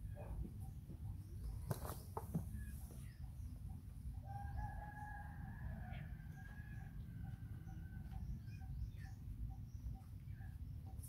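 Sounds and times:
rooster crowing: 4.3 - 7.0.

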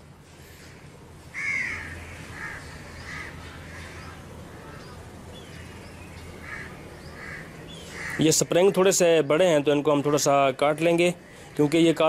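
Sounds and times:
crow cawing: 0.5 - 5.0, 6.4 - 8.4.

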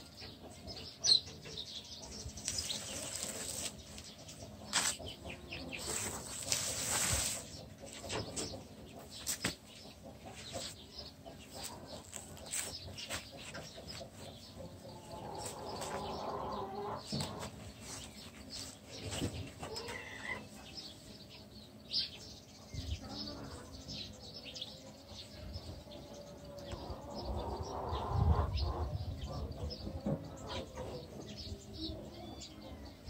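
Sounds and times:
rustles and light knocks: 17.1 - 19.9.

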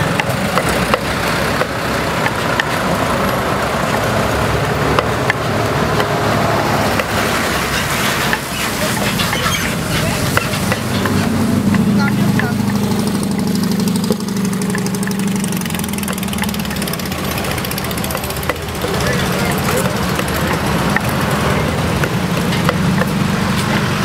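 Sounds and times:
wooden pestle knocking in mortar: 0.0 - 2.9, 4.9 - 6.2, 10.3 - 23.9
street traffic: 0.0 - 24.0.

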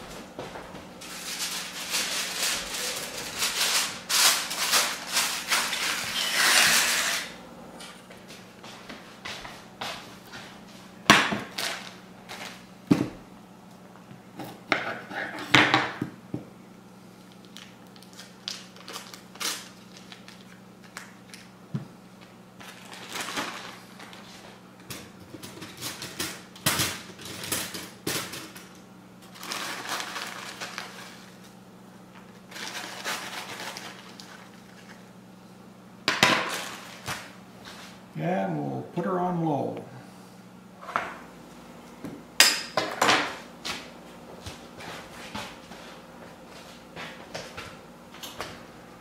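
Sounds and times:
low steady hum: 0.0 - 49.0
plastic bag crinkling: 1.0 - 6.5, 17.4 - 21.5, 22.6 - 24.3, 29.2 - 31.4, 32.3 - 35.0.

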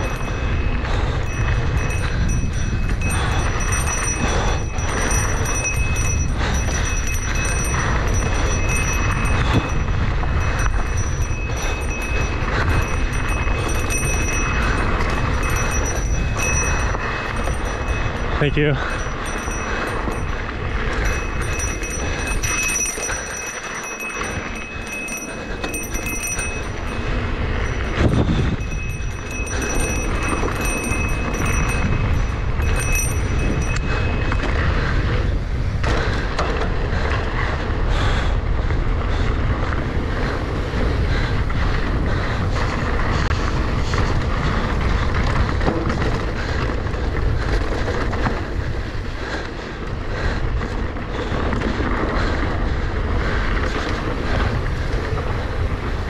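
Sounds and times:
thin high ringing tone: 0.0 - 34.6
mountain bike rattling downhill: 0.0 - 56.0.

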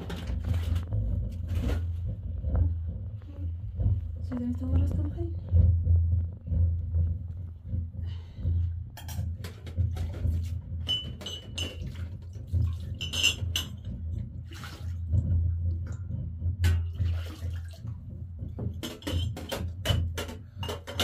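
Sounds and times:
low steady hum: 0.0 - 21.0
water pouring and splashing: 9.0 - 21.0.

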